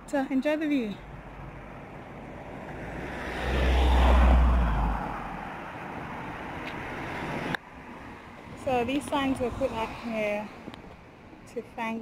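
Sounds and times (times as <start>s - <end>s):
traffic noise: 0.0s - 12.0s
car passing by: 1.4s - 10.7s.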